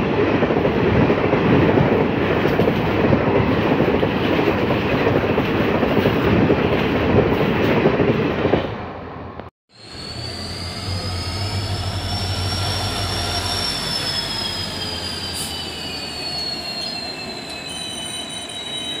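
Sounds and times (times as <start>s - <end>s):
train rumbling past: 0.0s - 19.0s
high-pitched wheel squeal: 9.8s - 19.0s.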